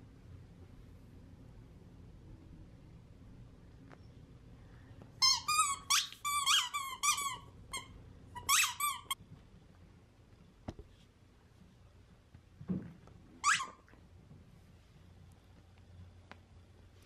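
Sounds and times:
dog chewing squeaky toy: 0:05.2 - 0:09.2.

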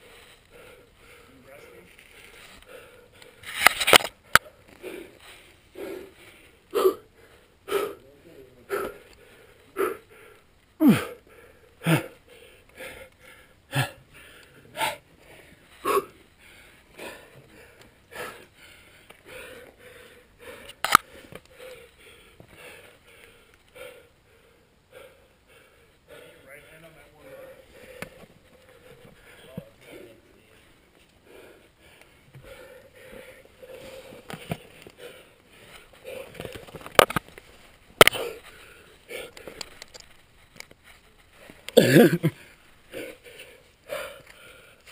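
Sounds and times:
person breathing hard: 0:00.0 - 0:03.6, 0:04.2 - 0:30.6, 0:31.2 - 0:37.2, 0:38.0 - 0:40.0, 0:41.0 - 0:44.9
person grunting: 0:10.8 - 0:11.2, 0:11.8 - 0:12.2, 0:13.7 - 0:14.0, 0:41.8 - 0:42.4.

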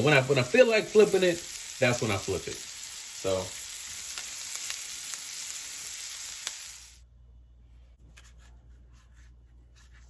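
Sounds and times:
fish and onions sizzling: 0:00.0 - 0:07.0.

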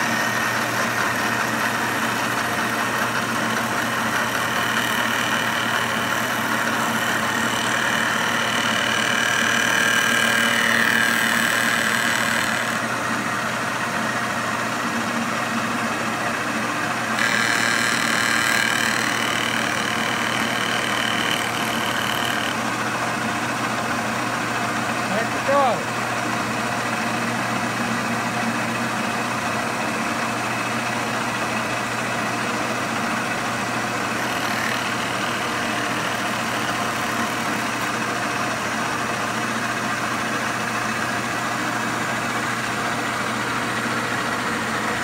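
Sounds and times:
high cutting whine: 0:00.0 - 0:12.9, 0:17.2 - 0:22.6, 0:34.0 - 0:38.6
milling machine motor hum: 0:00.0 - 0:45.0.

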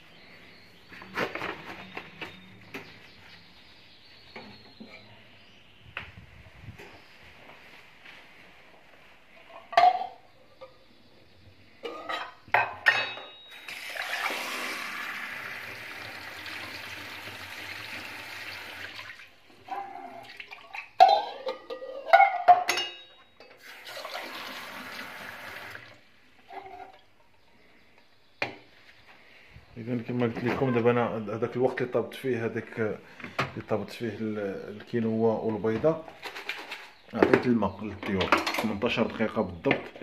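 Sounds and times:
pots and dishes clattering: 0:09.4 - 0:10.8, 0:11.8 - 0:14.1, 0:19.7 - 0:23.7, 0:36.1 - 0:38.9
tap running water: 0:13.7 - 0:19.3, 0:23.6 - 0:26.0.

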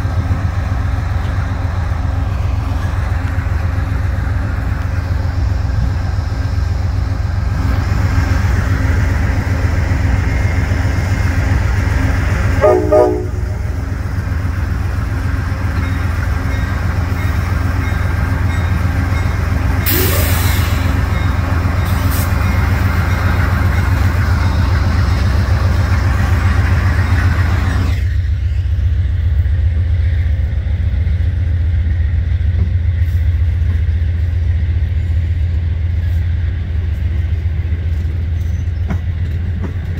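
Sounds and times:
train rumbling past: 0:00.0 - 0:39.9
train horn toot: 0:12.6 - 0:13.8.

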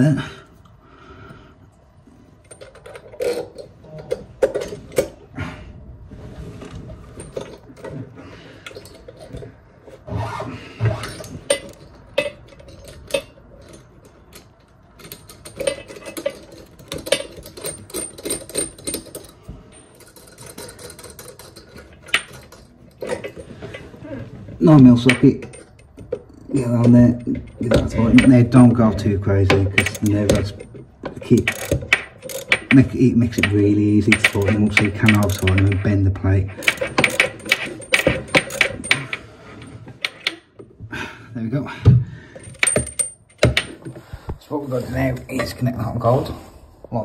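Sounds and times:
metal washers and nuts clicking: 0:02.4 - 0:05.2, 0:08.6 - 0:10.0, 0:11.0 - 0:23.9, 0:24.6 - 0:40.6, 0:42.4 - 0:44.0.

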